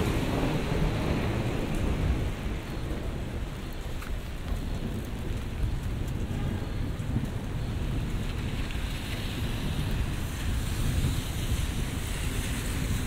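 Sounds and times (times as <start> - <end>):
rain on wet pavement: 0.0 - 13.0
drops ticking on umbrella: 2.9 - 10.0.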